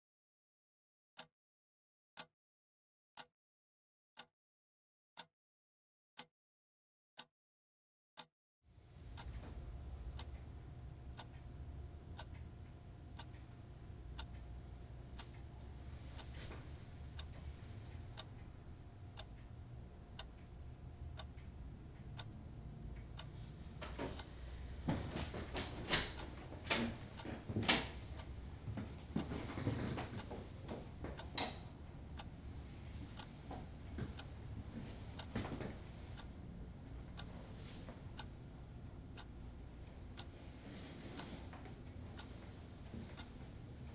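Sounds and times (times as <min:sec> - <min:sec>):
low hum: 0:08.8 - 0:35.2
alarm clock ticking: 0:09.0 - 0:37.4, 0:38.0 - 0:40.4, 0:41.2 - 0:42.4.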